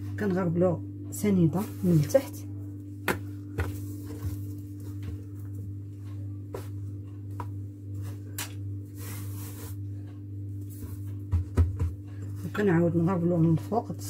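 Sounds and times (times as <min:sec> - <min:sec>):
steady low hum: 0:00.0 - 0:14.0
pastry rustling and patting: 0:01.6 - 0:12.6
knocks on counter: 0:11.3 - 0:12.0.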